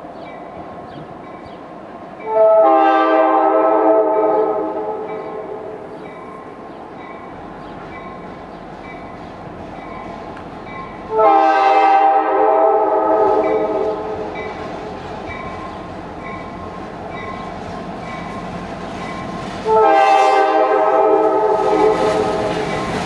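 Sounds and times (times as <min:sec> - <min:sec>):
locomotive air horn blasts: 0:02.2 - 0:05.8, 0:11.1 - 0:14.2, 0:19.6 - 0:22.4
crossing bell dinging: 0:04.3 - 0:11.2, 0:13.4 - 0:18.4, 0:19.0 - 0:19.4.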